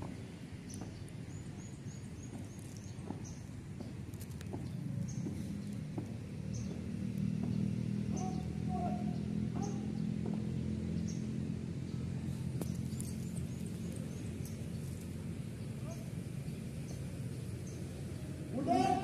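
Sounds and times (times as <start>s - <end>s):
low outdoor rumble: 0.0s - 19.0s
small bird chirping: 0.6s - 10.1s.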